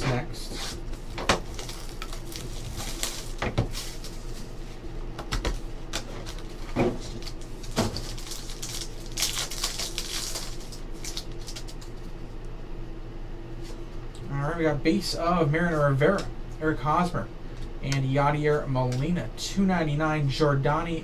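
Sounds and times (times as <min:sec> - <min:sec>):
steady low hum: 0:00.0 - 0:21.0
plastic wrapping crinkling: 0:00.9 - 0:04.6, 0:05.9 - 0:12.1.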